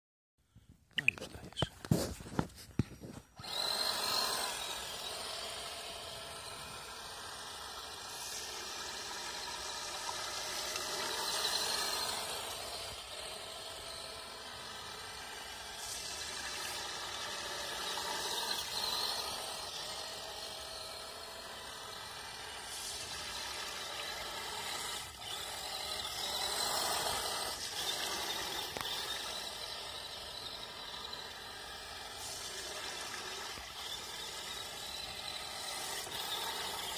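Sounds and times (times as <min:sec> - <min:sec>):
electric motor and gear whine: 0:01.6 - 0:36.9.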